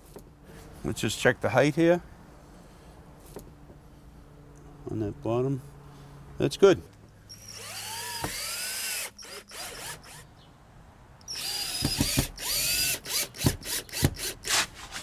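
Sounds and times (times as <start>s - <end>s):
cordless drill motor whining: 7.3s - 10.3s, 11.2s - 14.6s.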